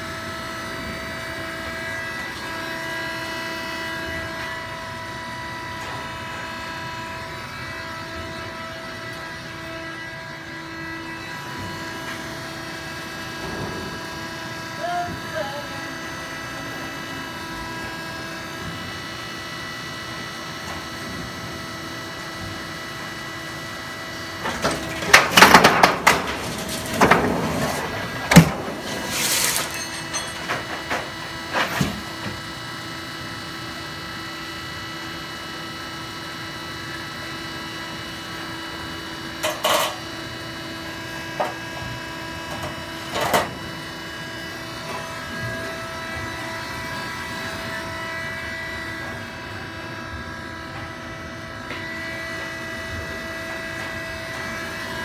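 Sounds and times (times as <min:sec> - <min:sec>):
roll-forming machine humming: 0:00.1 - 0:32.2.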